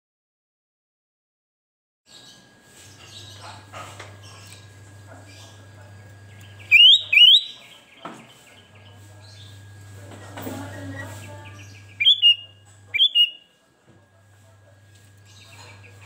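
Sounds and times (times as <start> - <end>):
bird calling in whistled notes: 6.6 - 7.7, 11.7 - 13.5.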